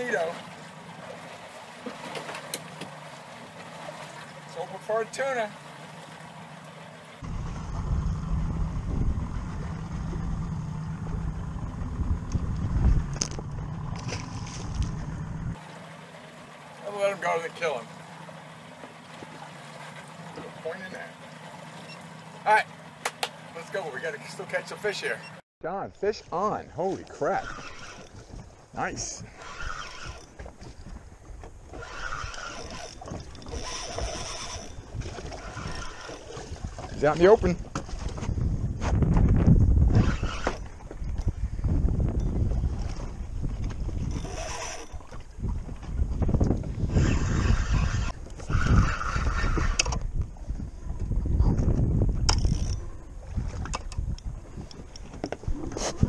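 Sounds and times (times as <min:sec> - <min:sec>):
outboard motor running: 0:00.0 - 0:25.4, 0:26.0 - 0:56.0
water noise: 0:00.0 - 0:56.0
rumbling wind: 0:07.2 - 0:16.7, 0:25.9 - 0:56.0
fishing reel being cranked: 0:27.2 - 0:28.2, 0:29.3 - 0:30.4, 0:31.7 - 0:36.4, 0:39.9 - 0:40.6, 0:44.1 - 0:45.1, 0:46.9 - 0:50.0, 0:52.3 - 0:52.8.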